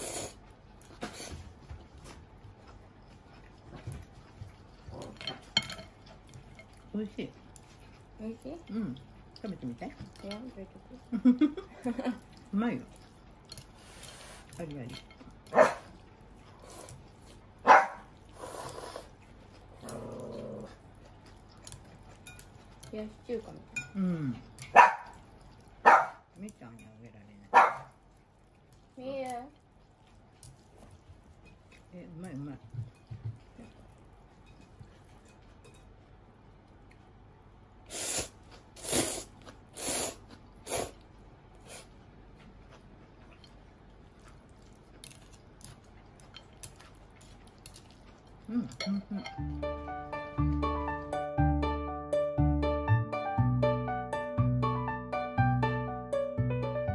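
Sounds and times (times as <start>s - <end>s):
person slurping noodles: 0.0s - 0.4s, 18.4s - 19.1s, 37.9s - 41.0s
dog barking: 15.5s - 15.9s, 17.6s - 18.1s, 24.7s - 25.2s, 25.8s - 26.3s, 27.5s - 28.0s.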